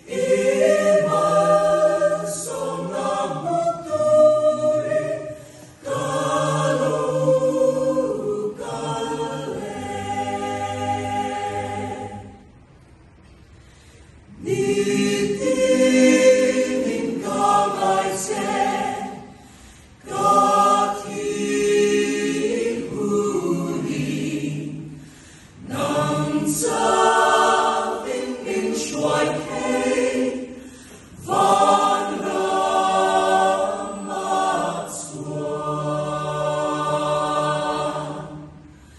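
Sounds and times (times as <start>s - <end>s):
mixed choir singing a cappella: 0.0s - 12.9s, 13.7s - 38.9s.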